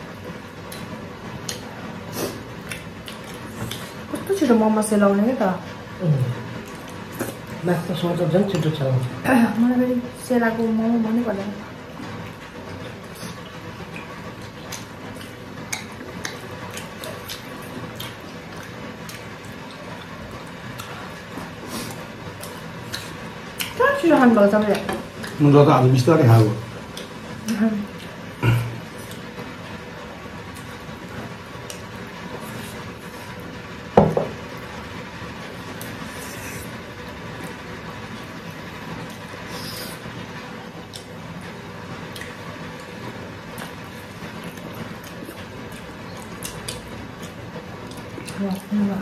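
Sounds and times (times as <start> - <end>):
steady background hum: 0.0 - 49.0
chewing smacks: 0.7 - 4.3, 12.6 - 23.8, 40.8 - 41.2, 42.1 - 48.7.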